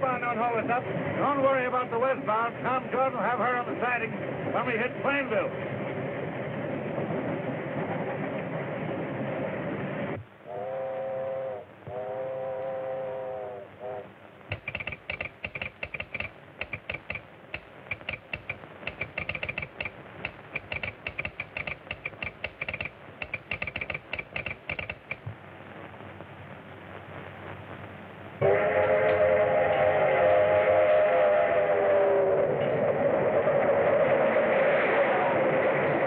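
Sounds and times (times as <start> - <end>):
steam whistle blowing: 10.5 - 14.1, 28.4 - 32.8
steam locomotive running: 10.5 - 25.3, 28.4 - 36.0
telegraph sounder clicking: 14.5 - 25.4.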